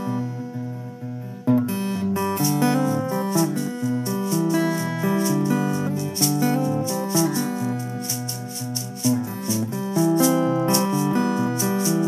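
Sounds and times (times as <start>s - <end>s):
acoustic guitar strumming: 0.0s - 12.0s
ukulele strumming: 2.1s - 12.0s.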